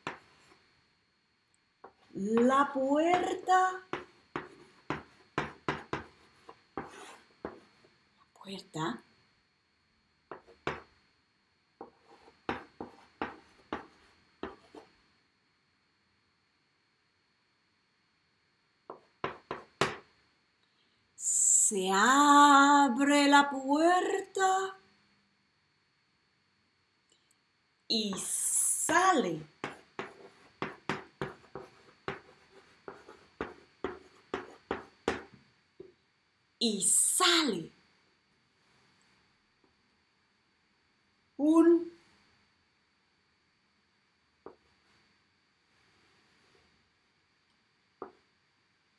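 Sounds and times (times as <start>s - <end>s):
chalk strokes on blackboard: 3.1s - 7.8s, 11.8s - 14.9s, 28.9s - 35.3s, 44.5s - 46.7s.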